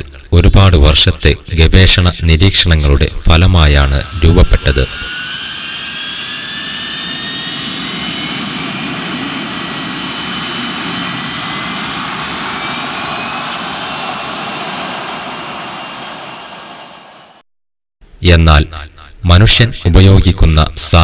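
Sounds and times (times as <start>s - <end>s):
jet engines running: 3.0s - 17.4s.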